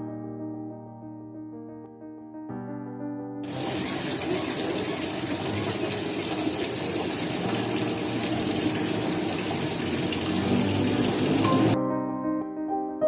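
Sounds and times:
fountain water splashing into pool: 3.4s - 11.8s.

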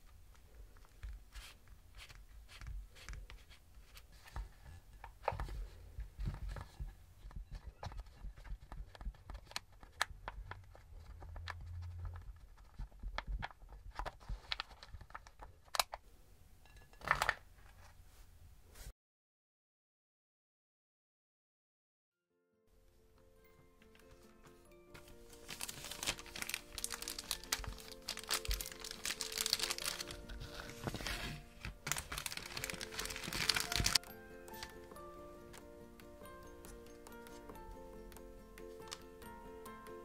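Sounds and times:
plastic tray clicking and crackling: 7.4s - 16.0s, 25.5s - 34.8s.

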